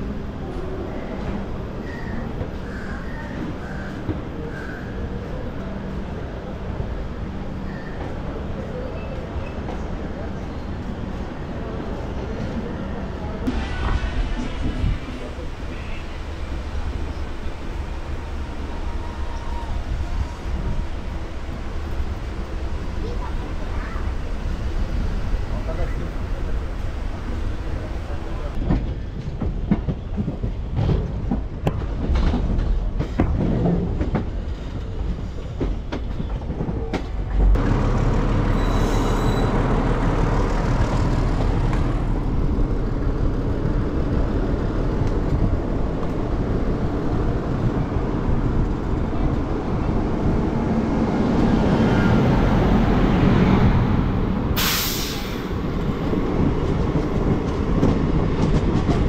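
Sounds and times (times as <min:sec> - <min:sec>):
train rolling rumble: 0:00.0 - 0:59.0
loud hiss: 0:54.6 - 0:55.6.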